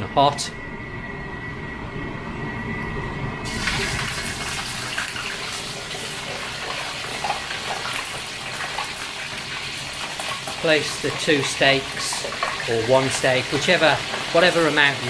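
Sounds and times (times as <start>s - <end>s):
fish sizzling in hot oil: 3.4s - 15.0s.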